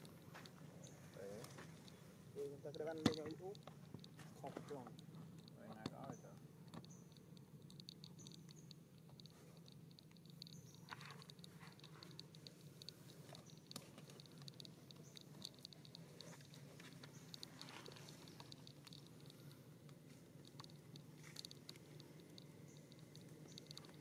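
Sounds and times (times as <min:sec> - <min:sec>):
low steady hum: 0:00.0 - 0:24.0
fast high ticking: 0:04.9 - 0:24.0.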